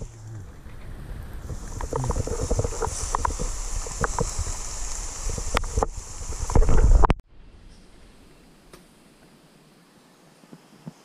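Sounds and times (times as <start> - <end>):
wind buffeting microphone: 0.0 - 8.2
rustling in dry leaf litter: 0.0 - 9.7
steady high hiss: 0.0 - 11.0.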